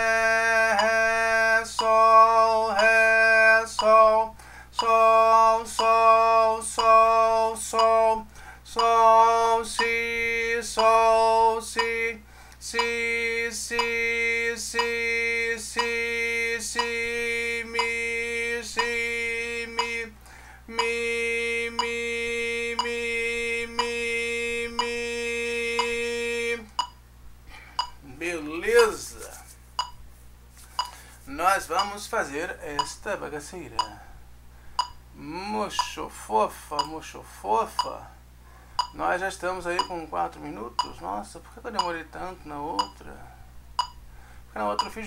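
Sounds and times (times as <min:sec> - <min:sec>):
man chanting on one pitch: 0:00.0 - 0:20.1, 0:20.7 - 0:26.7, 0:28.0 - 0:29.5, 0:31.3 - 0:34.1, 0:35.2 - 0:38.2, 0:38.9 - 0:43.4, 0:44.5 - 0:45.0.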